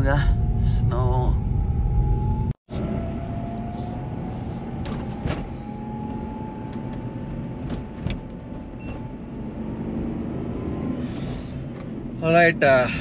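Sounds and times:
faint rising whine: 0.0s - 9.7s
car road and engine rumble: 0.0s - 13.0s.

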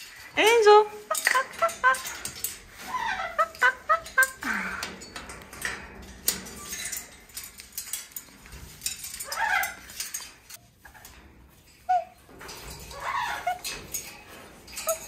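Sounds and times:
parrots squawking: 0.9s - 4.6s, 9.2s - 9.9s, 12.9s - 13.7s.

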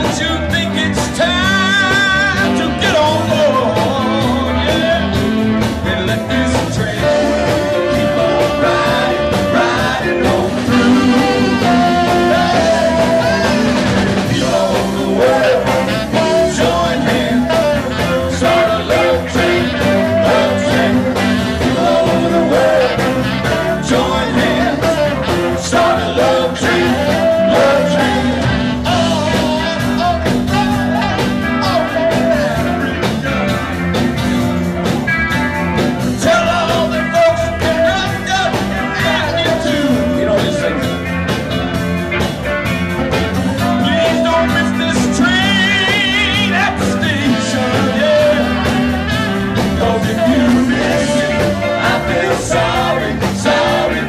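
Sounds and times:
man singing: 0.0s - 33.7s, 36.1s - 41.5s, 43.4s - 54.0s
congas: 0.0s - 54.0s
live band playing: 0.0s - 54.0s.

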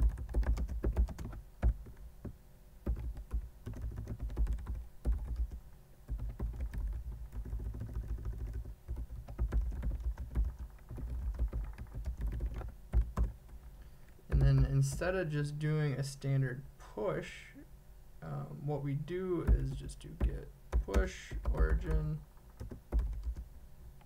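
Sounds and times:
typing on computer keyboard: 0.0s - 2.0s, 2.8s - 13.6s, 19.4s - 23.5s.

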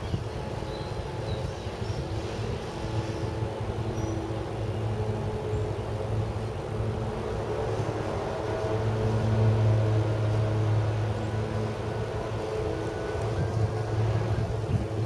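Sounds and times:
breeze buffeting microphone: 0.0s - 15.0s
steady low hum: 0.0s - 15.0s.

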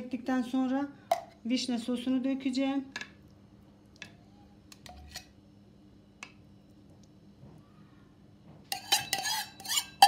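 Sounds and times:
saucepan and spoon clinking: 8.7s - 10.0s.

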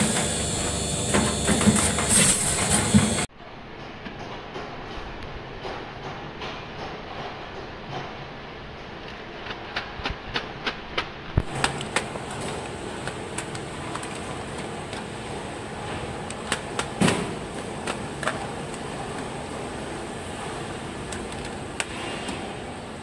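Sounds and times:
packing machine humming: 0.0s - 3.3s, 10.6s - 23.0s.

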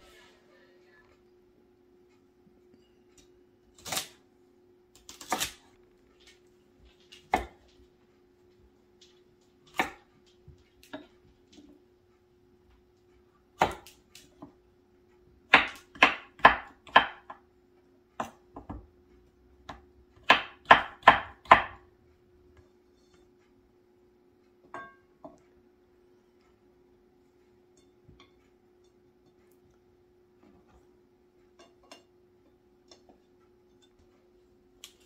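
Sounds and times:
knife chopping on wooden board: 7.3s - 7.7s, 9.7s - 10.1s, 13.6s - 14.5s, 15.5s - 17.4s, 18.2s - 18.9s, 19.6s - 21.8s.

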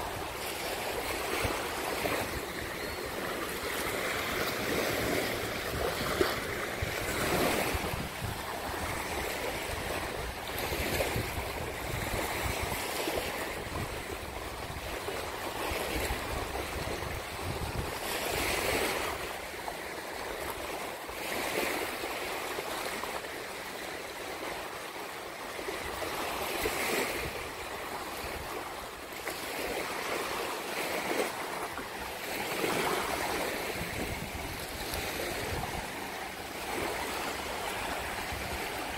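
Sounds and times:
wind rumbling on microphone: 0.0s - 19.3s, 31.5s - 38.9s
small waves washing on beach: 0.0s - 38.9s.

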